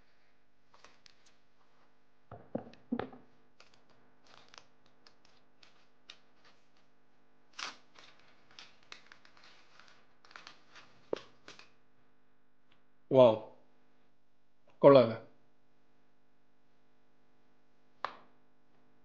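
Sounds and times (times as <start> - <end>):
cardboard packaging rustling: 7.6 - 11.7.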